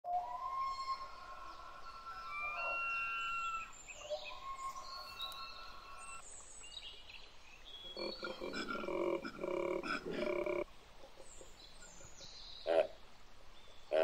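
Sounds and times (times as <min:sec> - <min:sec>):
birds whistling: 0:00.1 - 0:06.2, 0:07.8 - 0:10.6
faint outdoor hiss: 0:01.0 - 0:14.0.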